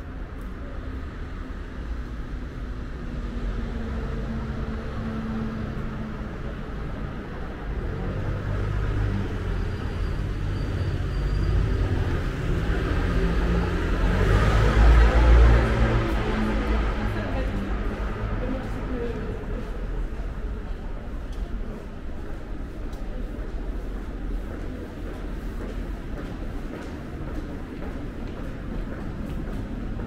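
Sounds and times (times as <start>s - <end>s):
vehicle engine rumbling: 0.0s - 30.0s.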